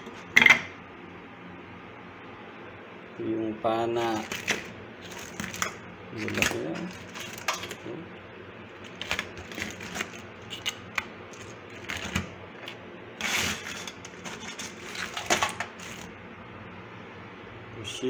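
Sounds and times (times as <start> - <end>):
crab shells clicking and clattering: 4.1 - 7.8, 8.8 - 16.1.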